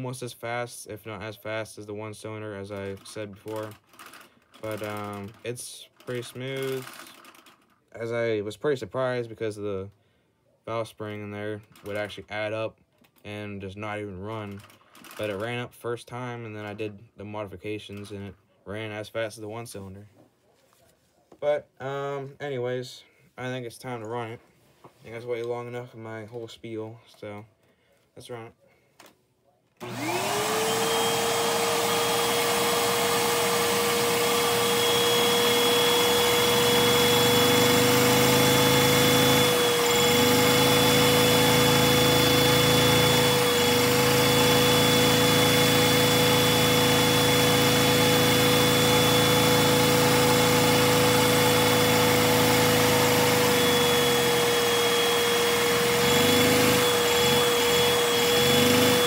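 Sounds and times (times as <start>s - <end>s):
vacuum cleaner whining: 29.8s - 59.0s.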